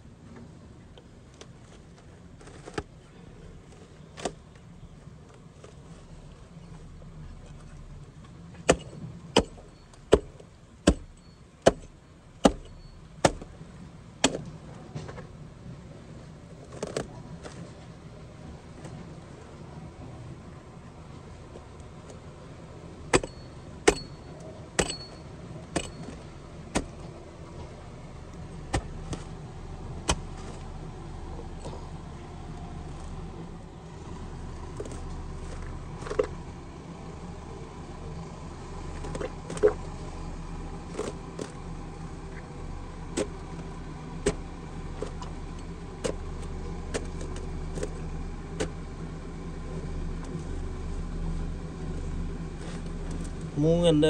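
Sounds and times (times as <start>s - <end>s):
low engine hum: 0.0s - 54.0s
hatchet chopping roots: 8.6s - 13.6s, 14.2s - 14.5s, 23.1s - 27.2s, 28.1s - 29.4s, 30.0s - 31.9s, 43.1s - 43.6s, 44.2s - 45.4s, 46.0s - 48.8s.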